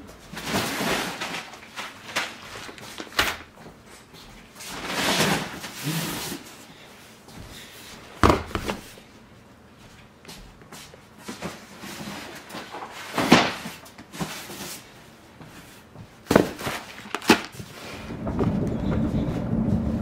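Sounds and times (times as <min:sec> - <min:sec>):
cardboard scraping and rustling: 0:04.6 - 0:06.5, 0:16.3 - 0:19.1.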